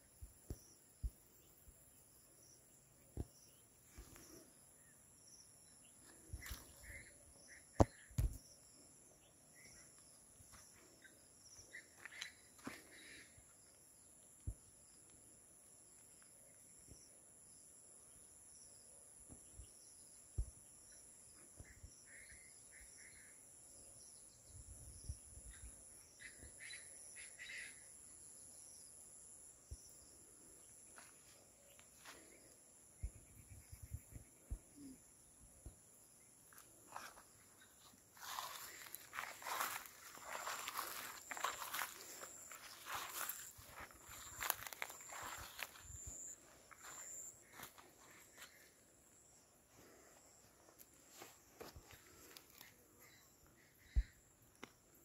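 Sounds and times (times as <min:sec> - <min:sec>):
high-pitched insect drone: 0:36.9 - 0:47.8
bird chirps: 0:51.0 - 0:55.0.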